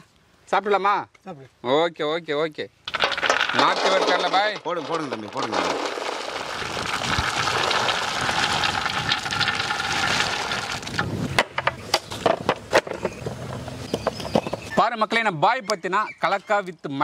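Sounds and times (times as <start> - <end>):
peanuts rattling into metal basin: 2.9 - 11.1.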